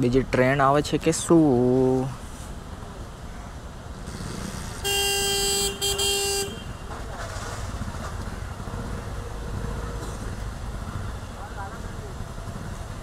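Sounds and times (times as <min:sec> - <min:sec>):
low traffic rumble: 0:00.0 - 0:13.0
vehicle horn honking: 0:04.8 - 0:06.9.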